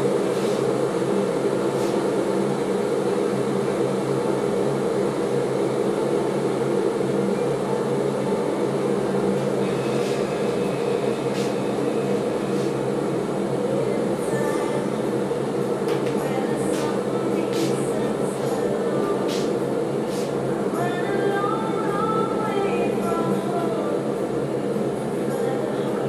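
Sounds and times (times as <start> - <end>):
appliance fan motor humming: 0.0 - 26.0.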